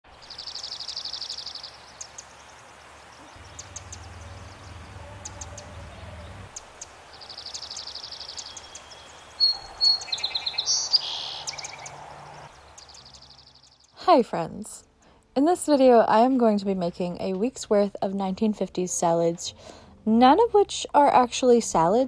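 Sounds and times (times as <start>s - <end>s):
songbird trills: 0.1s - 14.0s
whistled bird notes: 3.2s - 6.6s, 7.2s - 12.0s
short high bird chirps: 7.3s - 11.9s.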